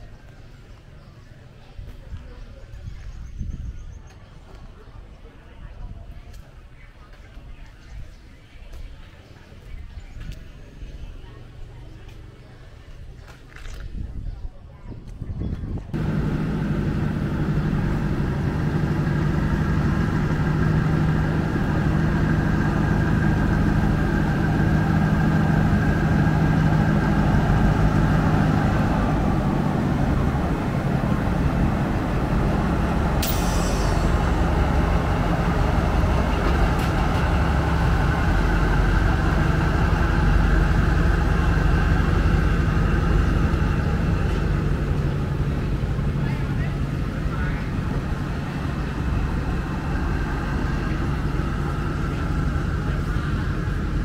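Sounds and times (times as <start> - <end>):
train coaches rumbling on rails: 0.0 - 54.0
locomotive engine hum: 15.7 - 54.0
sharp metal clank: 33.2 - 34.2.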